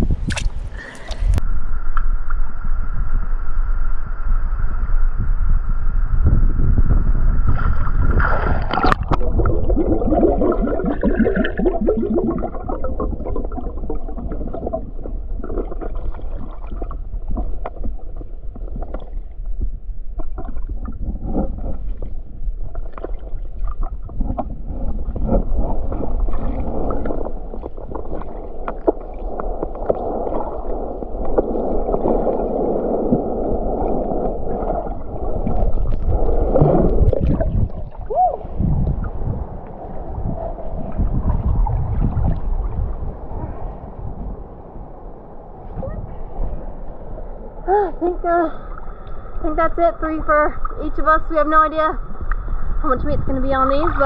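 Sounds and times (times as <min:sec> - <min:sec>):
sharp click: 0:00.2 - 0:02.1.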